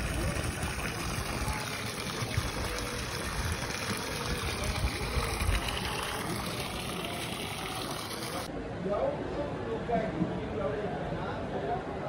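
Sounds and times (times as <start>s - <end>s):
hose water splashing into pond: 0.0s - 8.5s.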